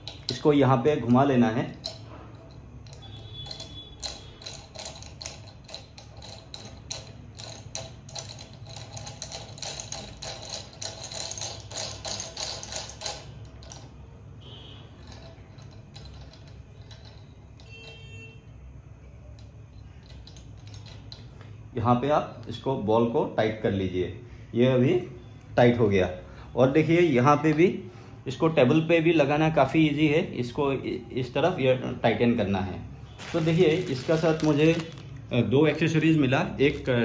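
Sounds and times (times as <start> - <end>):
faint handling sounds: 33.0 - 37.0.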